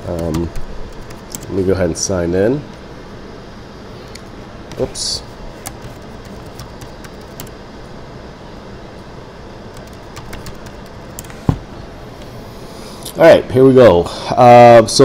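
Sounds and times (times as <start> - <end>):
keyboard keys clicking: 0.0 - 1.5, 5.6 - 7.5, 9.7 - 11.4
low background hum: 0.0 - 15.0.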